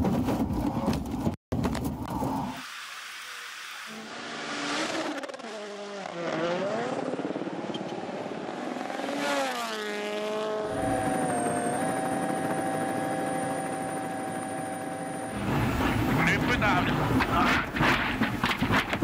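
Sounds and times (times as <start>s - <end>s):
engine revving: 2.5s - 18.3s
rally car engine passing: 3.5s - 12.0s
steady engine drone: 10.4s - 18.1s.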